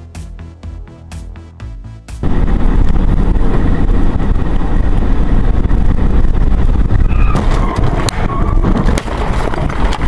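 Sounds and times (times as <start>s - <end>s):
engine and road rumble: 0.0s - 10.0s
sharp knocks and bangs: 7.2s - 10.0s.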